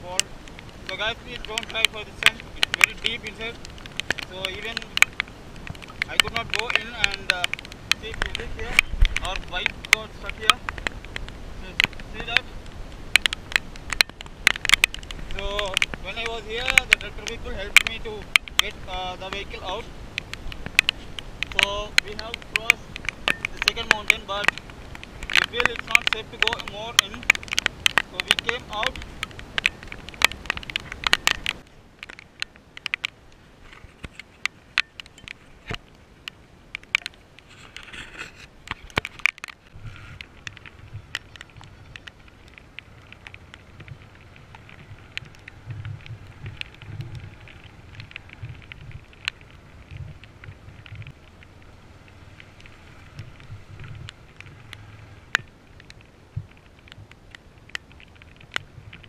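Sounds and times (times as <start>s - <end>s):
sharp crackling clicks on microphone: 0.0s - 59.0s
motorcycle engine humming: 39.3s - 59.0s.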